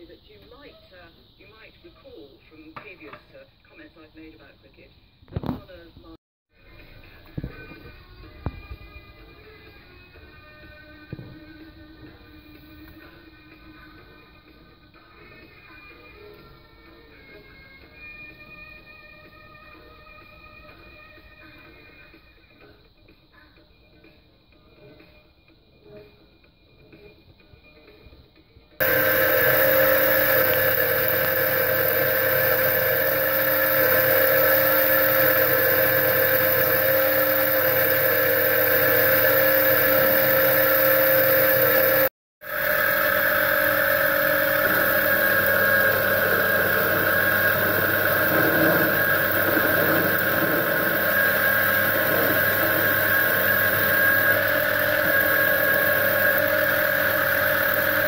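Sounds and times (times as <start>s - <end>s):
metal lathe motor and gear whine: 28.8s - 58.0s.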